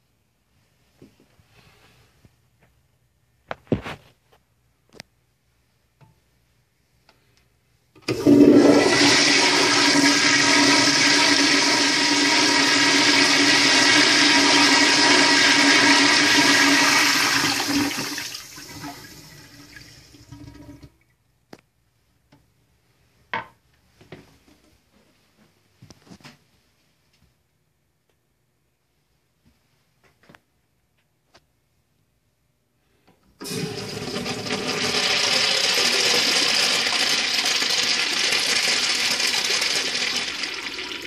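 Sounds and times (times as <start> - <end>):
toilet flushing: 8.0 - 21.0, 33.4 - 41.0.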